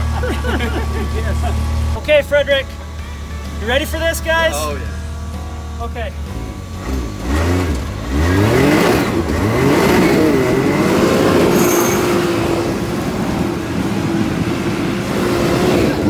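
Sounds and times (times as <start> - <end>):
utility vehicle engine revving: 0.0 - 16.0
wind and tyres rushing: 7.7 - 16.0.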